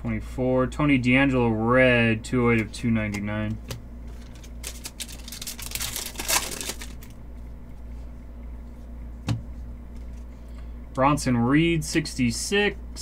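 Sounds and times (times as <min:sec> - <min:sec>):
low steady hum: 0:00.0 - 0:13.0
trading cards and foil wrapper rustling: 0:04.1 - 0:07.2.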